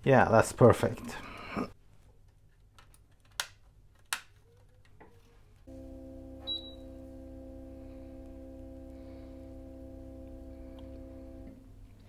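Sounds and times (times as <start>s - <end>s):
cooker electrical hum: 5.7s - 12.0s
short high beep: 6.4s - 6.9s.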